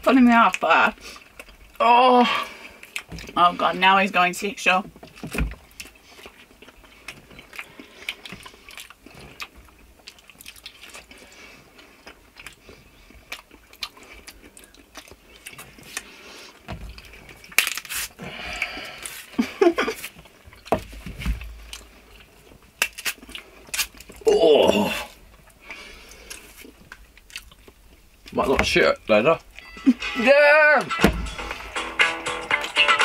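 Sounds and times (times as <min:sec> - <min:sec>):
chewing and mouth sounds: 0:00.3 - 0:01.8, 0:02.4 - 0:03.4, 0:05.0 - 0:28.4
banana peel tearing: 0:17.4 - 0:18.2, 0:22.8 - 0:25.1
loud muffled thuds: 0:31.0 - 0:31.7.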